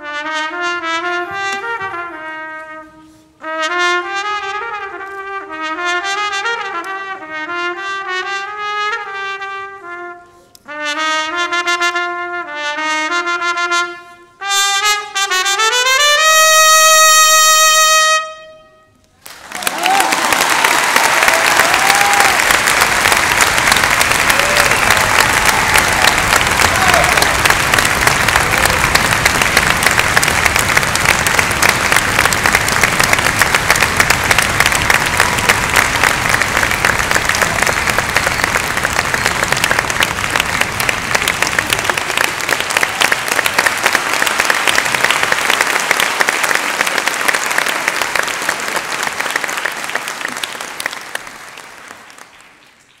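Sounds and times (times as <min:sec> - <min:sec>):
audience applauding: 0:19.2 - 0:53.0.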